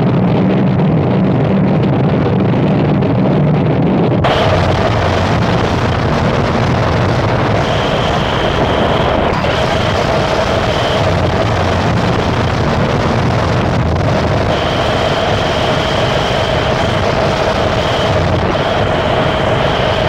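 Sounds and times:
harsh noise wall: 0:00.0 - 0:20.0
low rumble: 0:00.0 - 0:20.0
steady droning tone: 0:03.6 - 0:20.0
thin high whine: 0:04.2 - 0:20.0.

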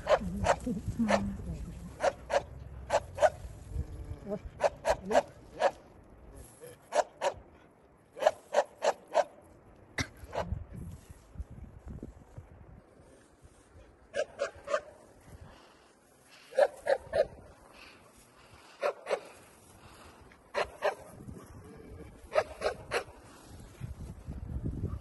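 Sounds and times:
dog barking: 0:00.0 - 0:01.2, 0:02.0 - 0:03.4, 0:04.6 - 0:05.8, 0:06.9 - 0:07.4, 0:08.2 - 0:09.3, 0:14.1 - 0:15.0, 0:16.5 - 0:17.4, 0:18.8 - 0:19.3, 0:20.5 - 0:21.1, 0:22.3 - 0:23.2.

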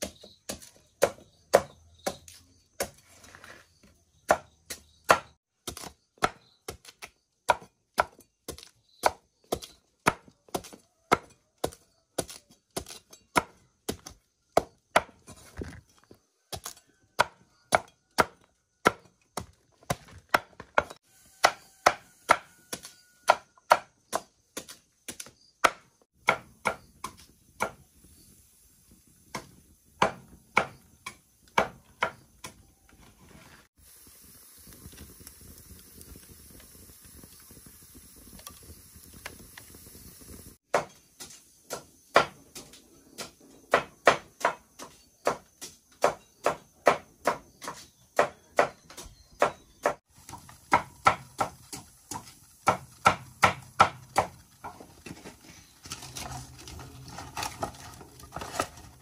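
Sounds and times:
cleaver chopping on wooden block: 0:00.0 - 0:03.0, 0:04.3 - 0:15.2, 0:16.5 - 0:27.8, 0:29.3 - 0:32.6, 0:40.7 - 0:54.3
wood fire burning hiss: 0:00.0 - 0:20.0, 0:20.8 - 0:59.0.

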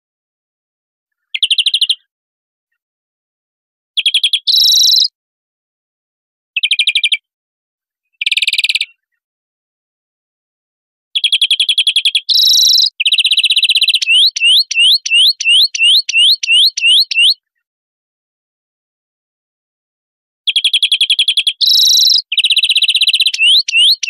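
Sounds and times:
finch singing chattering trills: 0:04.5 - 0:05.1, 0:12.3 - 0:17.4, 0:21.2 - 0:24.0.

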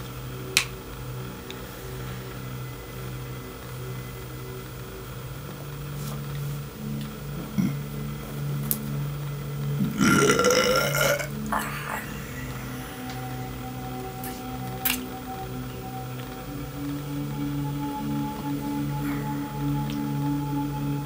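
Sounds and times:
man's throaty vocal sound: 0:09.8 - 0:13.0
man humming low: 0:09.8 - 0:13.7.

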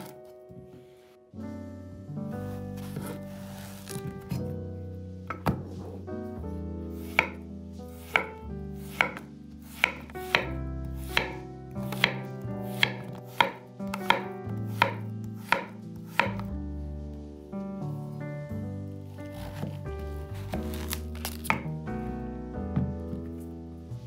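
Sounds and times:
knife chopping on wooden board: 0:07.0 - 0:07.4, 0:08.0 - 0:16.5.

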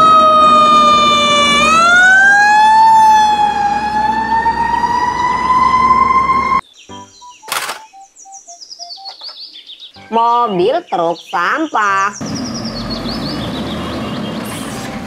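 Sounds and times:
fire truck siren wailing: 0:00.0 - 0:06.6
truck engine rumbling: 0:00.0 - 0:06.6, 0:12.2 - 0:15.0.

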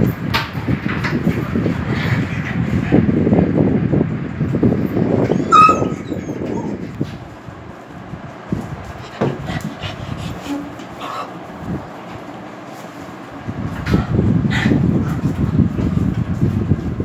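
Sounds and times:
dogs scuffling: 0:04.4 - 0:17.0
dog whimpering: 0:05.3 - 0:06.8.

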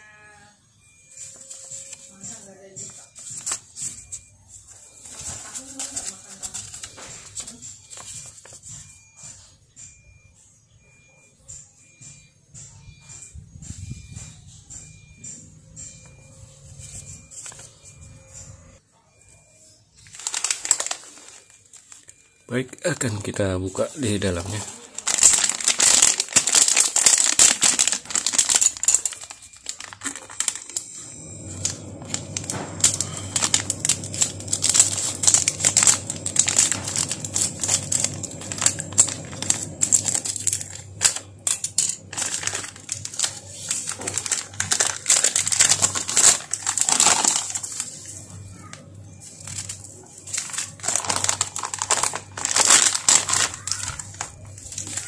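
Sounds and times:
plastic packaging crinkling: 0:00.8 - 0:09.0, 0:19.9 - 0:55.0
scissors cutting foil: 0:05.0 - 0:08.7, 0:20.0 - 0:22.2, 0:24.0 - 0:30.9, 0:31.6 - 0:55.0
low steady hum: 0:20.2 - 0:55.0.

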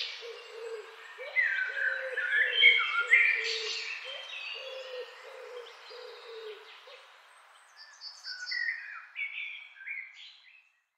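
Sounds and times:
songbirds chirping and whistling: 0:00.0 - 0:10.9.

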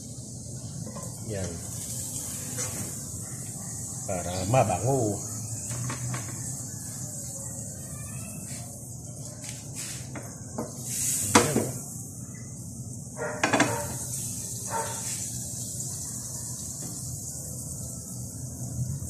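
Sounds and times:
butter sizzling in a pan: 0:00.0 - 0:19.0
cookware knocking and clattering: 0:13.4 - 0:14.0.

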